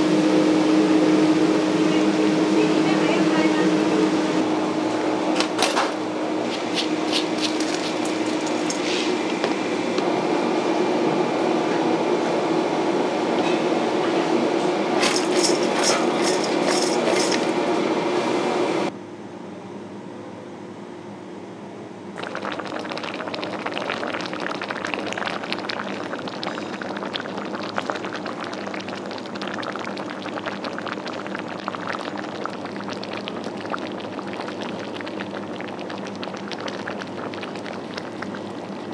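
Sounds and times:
kitchen hum: 0.0 - 18.9, 22.2 - 38.9
soup bubbling at a boil: 7.0 - 10.0, 22.2 - 38.9
metal spoon clinking steel bowl: 7.4 - 8.9, 15.0 - 17.6.

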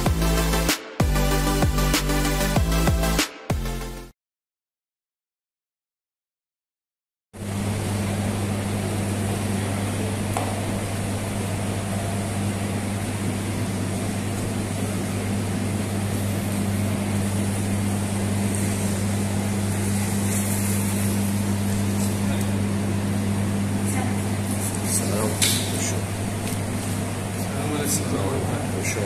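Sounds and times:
low machine hum: 7.4 - 29.0.

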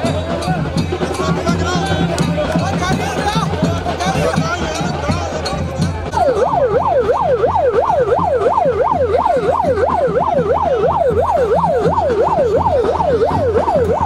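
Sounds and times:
electronic siren yelping: 6.1 - 14.0.

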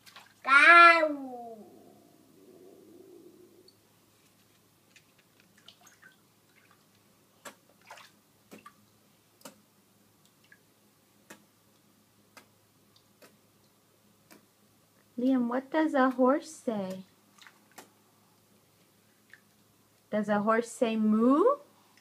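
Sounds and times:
small water splashes: 0.0 - 0.5, 4.9 - 9.6, 17.3 - 17.9, 19.2 - 19.7
water dripping into bathtub: 4.8 - 15.1, 16.0 - 17.9, 19.1 - 20.1.

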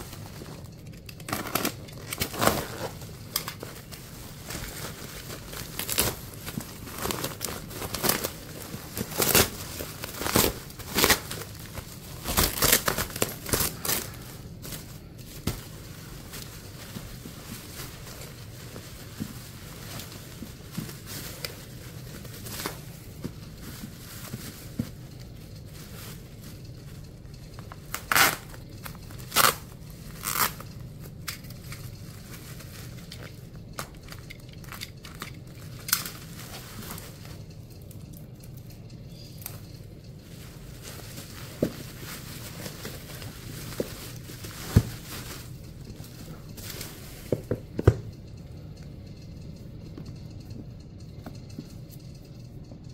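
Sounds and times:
bubble wrap crinkling: 0.0 - 49.2
steady low hum: 0.0 - 52.9
tape ripping: 1.2 - 3.6, 5.6 - 11.5, 12.1 - 14.2, 27.9 - 28.6, 29.2 - 30.8.

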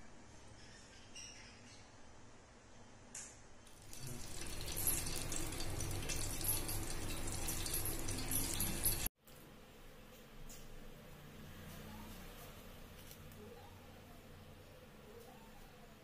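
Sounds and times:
oil pouring into a pan: 3.8 - 9.1.

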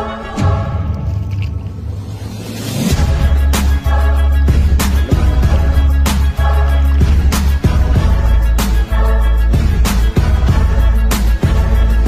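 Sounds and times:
music with heavy bass line: 2.8 - 12.0.

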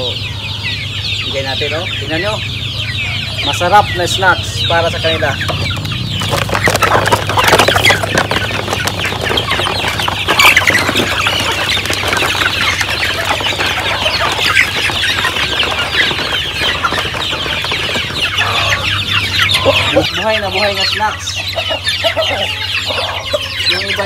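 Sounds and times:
chickens clucking: 0.0 - 24.0
wings flapping: 5.6 - 20.1.

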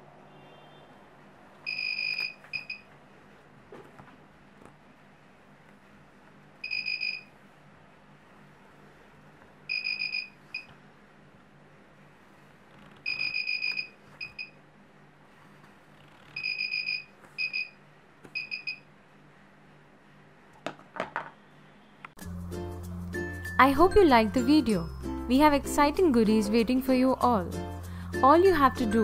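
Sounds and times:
alarm buzzer beeping: 1.7 - 2.8, 6.6 - 7.3, 9.7 - 10.7.

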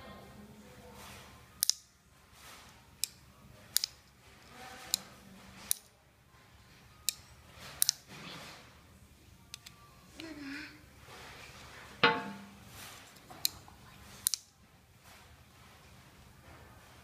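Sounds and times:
folding knife clicks: 1.6 - 1.8, 3.0 - 4.0, 7.8 - 8.0, 14.2 - 14.5.

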